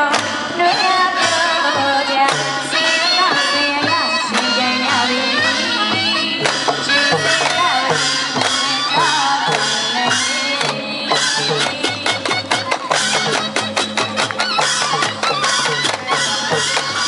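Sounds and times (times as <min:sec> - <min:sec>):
steady drum beat: 0:00.0 - 0:17.0
shrill wind instrument melody: 0:00.7 - 0:17.0.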